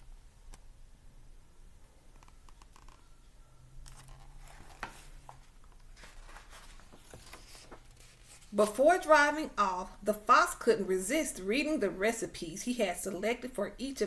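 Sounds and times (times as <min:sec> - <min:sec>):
paper pages rustling and turning: 0:03.8 - 0:09.1.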